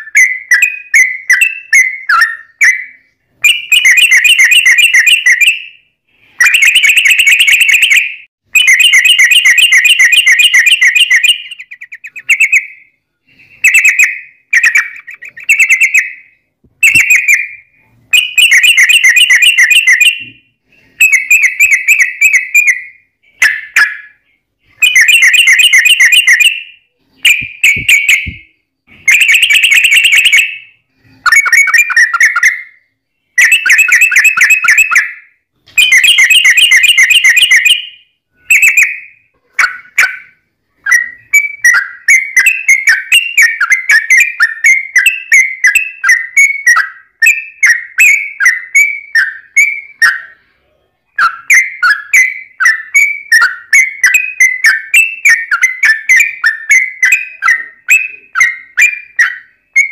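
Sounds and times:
bulbul chattering trills: 13.7s - 16.1s.

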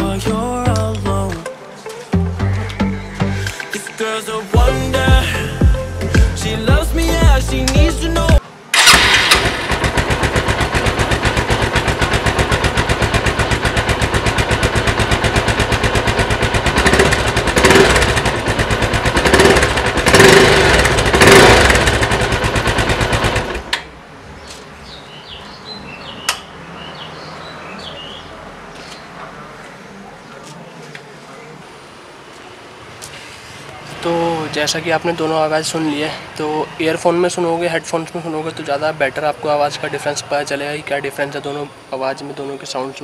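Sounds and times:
motorcycle engine revving: 8.7s - 23.8s.

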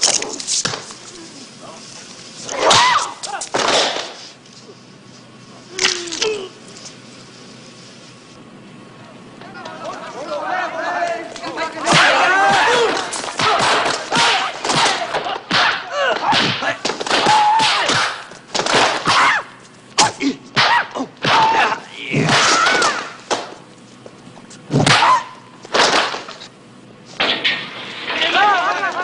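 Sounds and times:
shouted fighting cries and grunts: 9.4s - 18.1s, 19.1s - 23.1s, 28.2s - 29.0s
punch and kick impacts: 11.9s - 19.3s.

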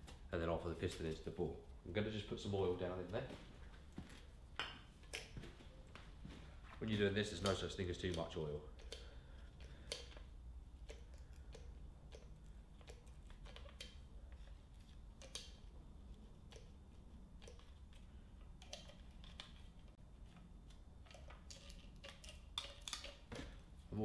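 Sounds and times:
low steady hum: 0.0s - 24.0s
oil can pump clicks: 7.3s - 14.5s.

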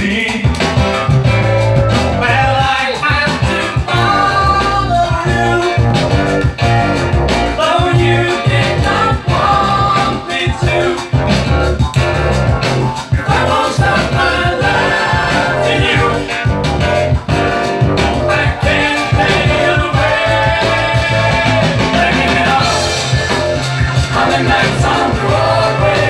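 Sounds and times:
man singing into microphone: 0.0s - 0.5s, 2.2s - 5.9s, 7.6s - 11.2s, 18.2s - 23.0s
backing music with bass beat: 0.0s - 26.0s.

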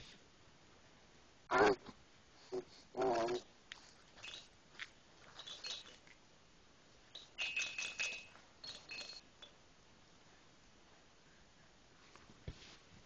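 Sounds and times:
toy bell jingling: 4.2s - 4.5s, 5.4s - 6.0s, 7.1s - 9.5s.

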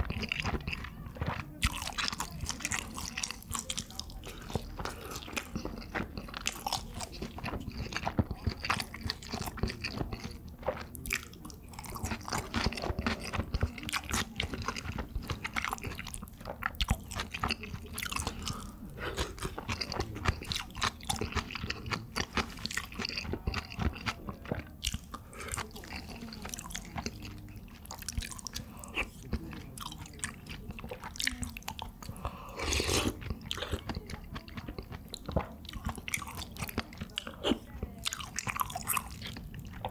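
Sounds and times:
crunchy chewing: 0.0s - 39.9s
slurp from a spoon: 32.0s - 33.8s.

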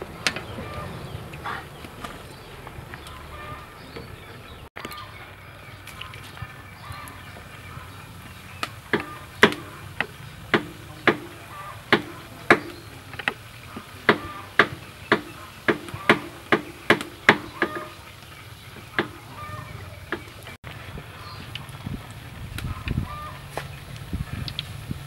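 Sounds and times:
sharp chopping strokes: 8.9s - 17.9s, 19.0s - 19.3s.

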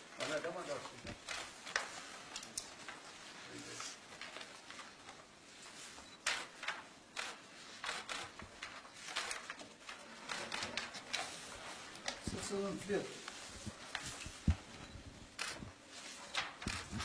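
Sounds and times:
papers rustling: 0.0s - 17.0s
faint hiss: 11.1s - 17.0s.

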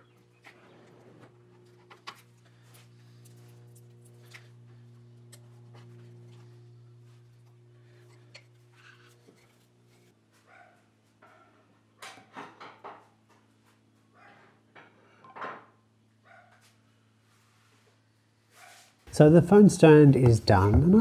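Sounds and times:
steady low hum: 0.0s - 10.2s, 19.1s - 21.0s
phone knocking on wooden stand: 20.2s - 21.0s.

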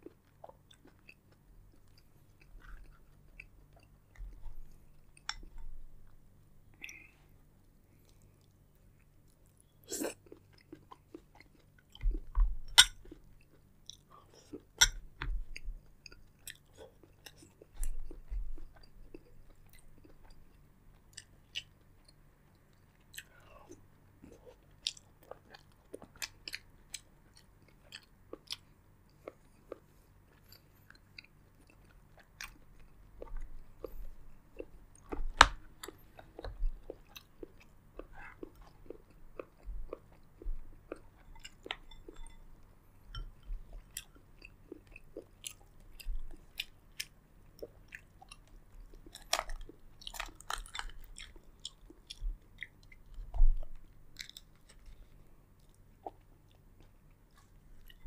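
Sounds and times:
chewing and crunching: 0.0s - 7.2s, 7.9s - 58.0s.

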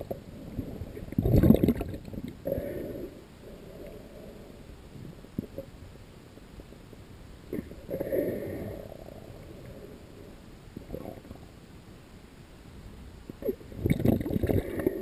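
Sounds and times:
water gurgling: 0.0s - 4.2s, 7.5s - 11.5s, 13.3s - 15.0s
underwater low rumble: 0.0s - 15.0s.

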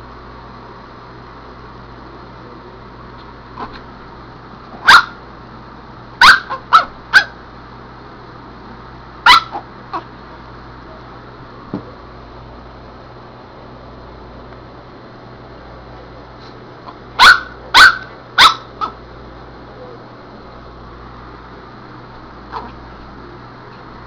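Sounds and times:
small dog yipping: 4.8s - 5.2s, 6.2s - 7.4s, 9.3s - 10.1s, 17.2s - 19.0s.

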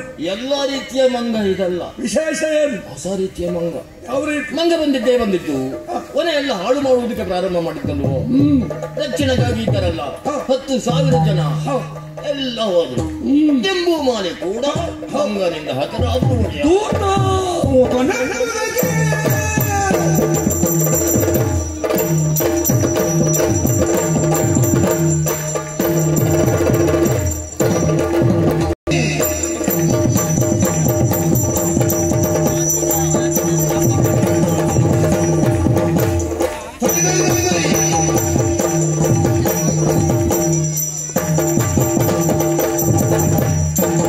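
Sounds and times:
drum strokes: 7.2s - 44.0s
jingling bells: 18.1s - 44.0s
hand cymbals ringing: 18.6s - 44.0s.

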